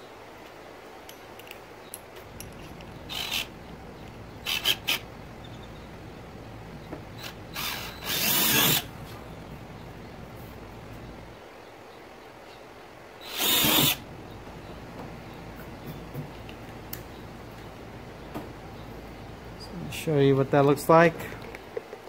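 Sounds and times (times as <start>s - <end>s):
cordless drill drilling plastic: 4.5s - 5.0s, 7.2s - 8.9s, 13.2s - 14.0s.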